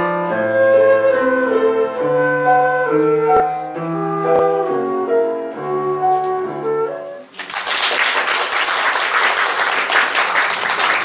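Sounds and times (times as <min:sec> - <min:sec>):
flute and piano playing: 0:00.0 - 0:07.4
audience applause: 0:07.3 - 0:11.0.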